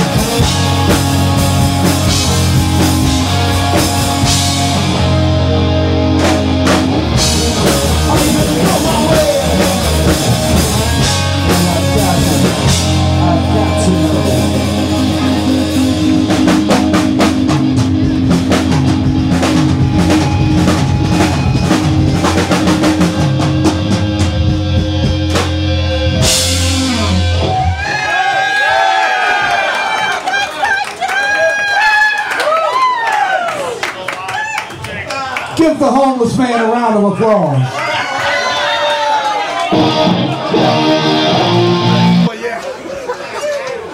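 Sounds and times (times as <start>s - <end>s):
electric guitar: 0.0s - 28.1s, 39.6s - 42.3s
drum kit: 0.0s - 28.6s, 39.7s - 42.3s
live rock band: 0.0s - 29.6s, 39.2s - 42.3s.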